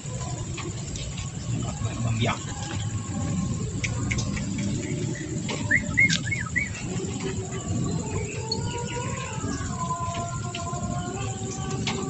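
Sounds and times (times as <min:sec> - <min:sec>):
songbirds chirping: 0:00.0 - 0:12.0.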